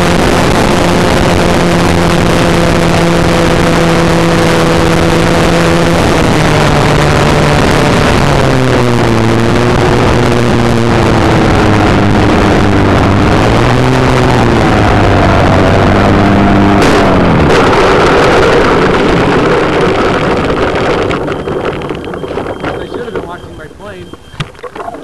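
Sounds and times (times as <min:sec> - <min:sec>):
wheels rolling roughly: 0:16.4 - 0:23.4.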